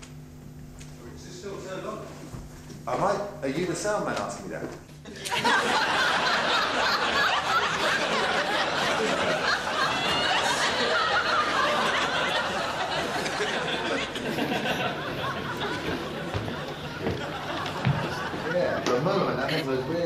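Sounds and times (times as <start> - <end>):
audience laughing: 5.1 - 20.0.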